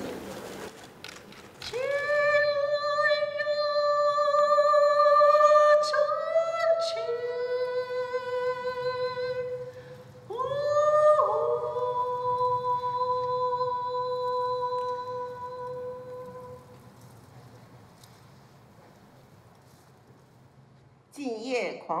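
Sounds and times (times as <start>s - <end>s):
wordless voice singing held notes: 1.7s - 16.9s.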